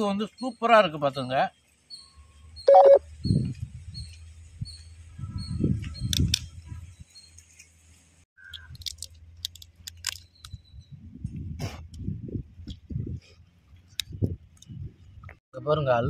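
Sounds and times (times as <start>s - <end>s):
bird chirping: 0.0s - 7.7s, 9.9s - 11.1s
crab shell cracking: 8.5s - 10.3s.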